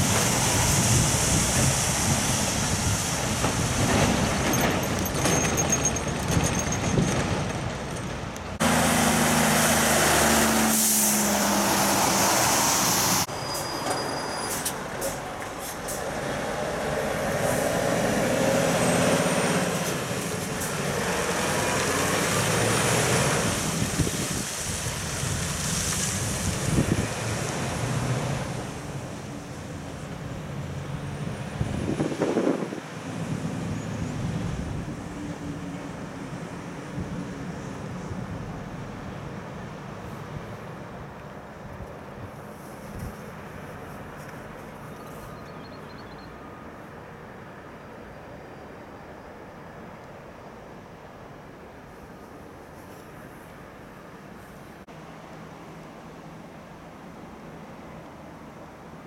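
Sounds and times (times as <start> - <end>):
tyre hiss on wet road: 0.0 - 3.9, 8.6 - 30.9, 42.3 - 44.8
heavy truck diesel engines: 0.0 - 59.0.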